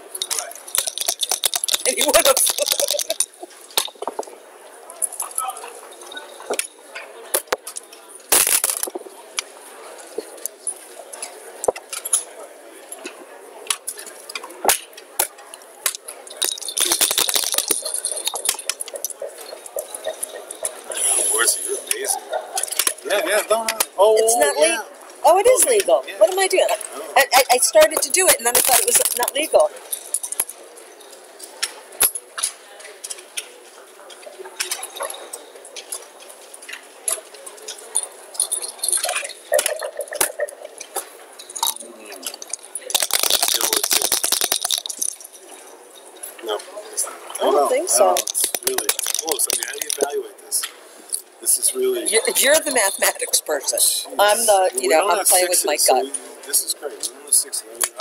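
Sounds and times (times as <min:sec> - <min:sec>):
dice rattling in a cup: 0:00.2 - 0:04.2, 0:08.4 - 0:09.0, 0:16.4 - 0:19.2, 0:27.4 - 0:30.6, 0:41.6 - 0:45.4, 0:47.9 - 0:50.2
sharp dice clicks: 0:00.2 - 0:04.2, 0:15.9 - 0:19.1, 0:27.8 - 0:29.5, 0:42.5 - 0:45.3, 0:48.1 - 0:50.1.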